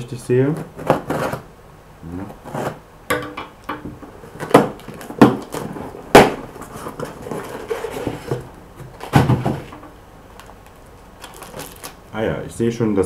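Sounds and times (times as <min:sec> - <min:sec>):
packing material rustling: 0:04.3 - 0:12.0.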